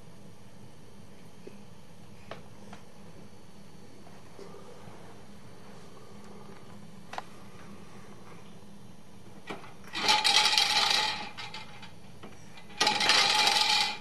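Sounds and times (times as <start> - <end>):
spinning toy wheel rattling: 9.9 - 12.0, 12.6 - 14.0.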